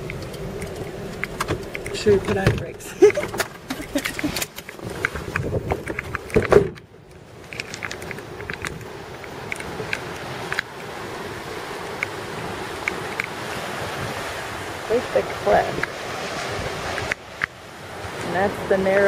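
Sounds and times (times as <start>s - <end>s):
clatter of clicks and knocks: 0.0s - 6.9s
wind rushing: 7.9s - 18.7s.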